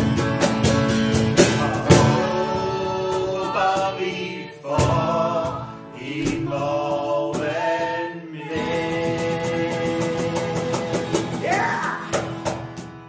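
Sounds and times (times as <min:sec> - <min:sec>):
acoustic guitar strumming: 0:00.0 - 0:13.0
cajon drumming: 0:00.0 - 0:13.0
voices singing: 0:01.4 - 0:12.2.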